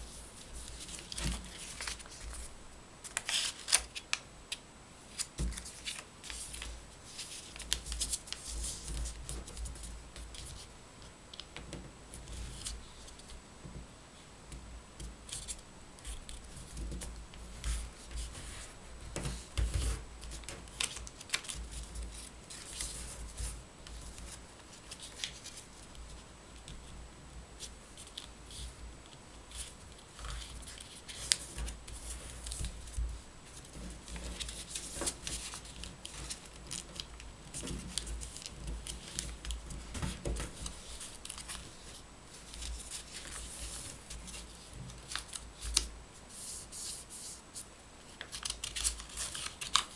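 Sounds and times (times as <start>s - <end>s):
paper being folded: 0.1s - 4.2s, 5.1s - 10.7s, 15.3s - 26.7s, 27.6s - 49.9s.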